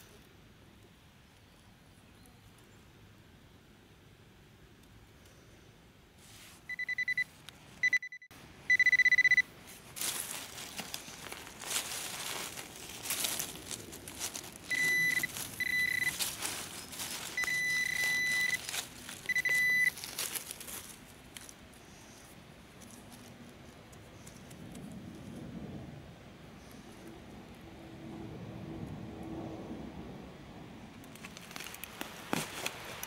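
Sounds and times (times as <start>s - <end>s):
metal detector beeping: 6.7s - 9.5s, 14.7s - 20.1s
soil and dry leaves scraping: 9.3s - 25.6s, 31.0s - 33.0s.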